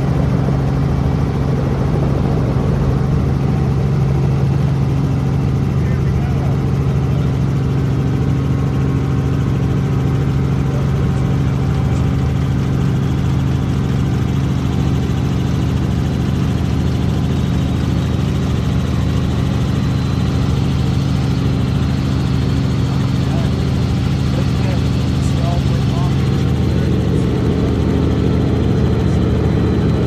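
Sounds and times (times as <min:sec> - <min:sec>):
helicopter engine and rotor: 0:00.0 - 0:30.0.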